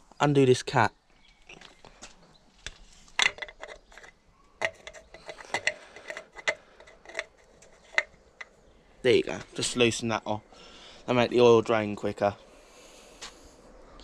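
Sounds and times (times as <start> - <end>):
plastic cap twisting clicks: 3.1 - 8.6.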